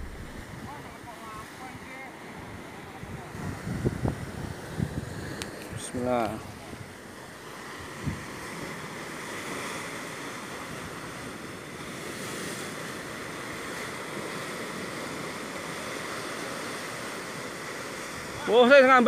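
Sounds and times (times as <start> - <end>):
surf breaking against rocks: 0.0 - 0.6.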